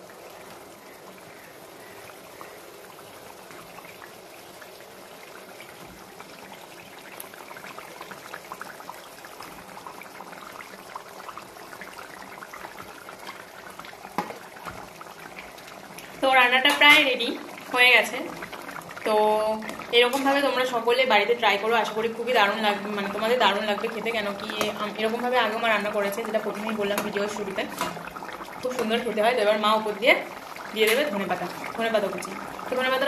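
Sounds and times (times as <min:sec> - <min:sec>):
curry bubbling and popping: 0:00.0 - 0:33.0.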